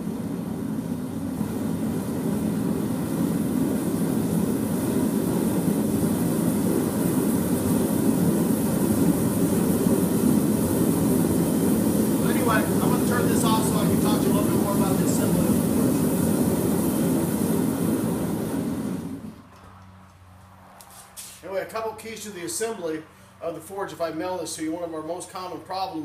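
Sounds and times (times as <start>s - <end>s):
propane forge burners roaring: 0.0s - 26.0s.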